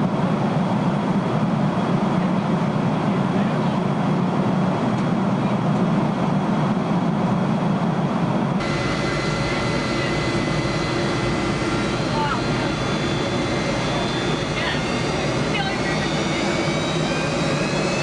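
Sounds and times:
airplane cabin rumble: 0.0 - 18.0
faint whining tones: 8.6 - 18.0.

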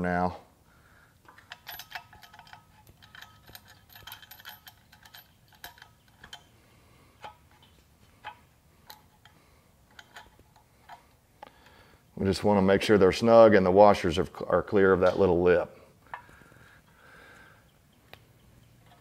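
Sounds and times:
metallic clicks of bolts and washers: 1.2 - 6.6, 7.2 - 11.8.

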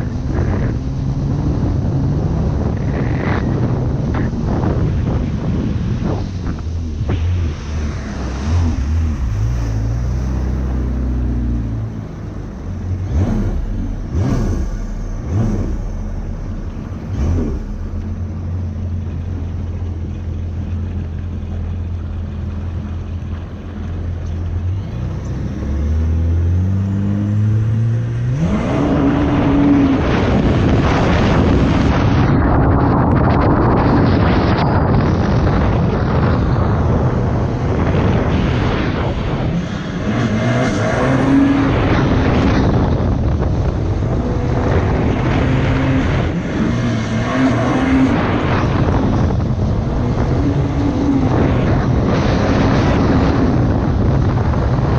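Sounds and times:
watercraft engine running: 0.0 - 26.8, 47.6 - 54.9
rush of spray and wind: 0.0 - 54.9.

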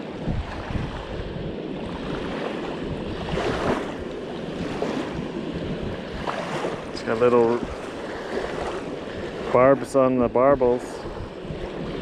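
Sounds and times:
wind buffeting microphone: 0.0 - 12.0
river water rushing: 1.8 - 12.0.

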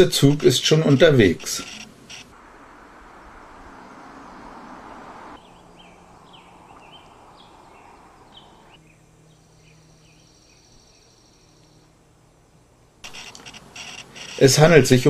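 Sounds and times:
small birds chirping: 0.0 - 2.4, 3.0 - 12.0, 13.0 - 14.7
rushing background noise: 0.0 - 15.0
high thin steady buzz: 13.0 - 14.6.

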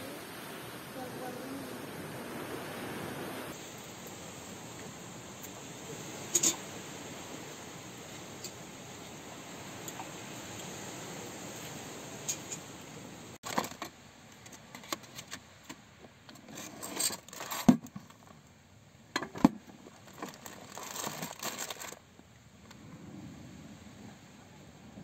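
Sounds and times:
plastic wrappers crinkling: 17.1 - 17.6, 19.9 - 22.0
plastic tubs and pan clattering: 19.2 - 22.0.

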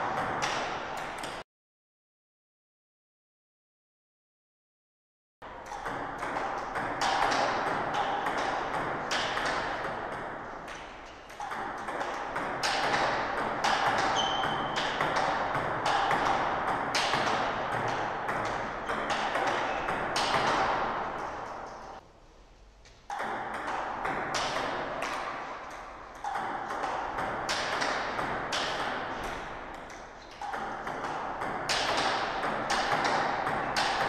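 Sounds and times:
steady background noise: 5.4 - 34.0
table tennis ball pocks: 26.2 - 34.0.

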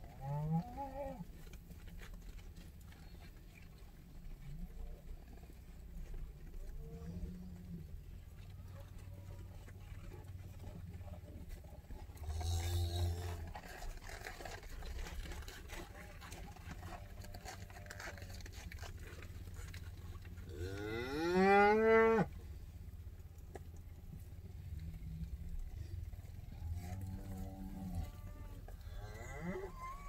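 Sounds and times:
low steady rumble: 0.0 - 30.0
cattle mooing: 0.1 - 1.2, 12.2 - 13.8, 20.5 - 22.3, 26.5 - 30.0.

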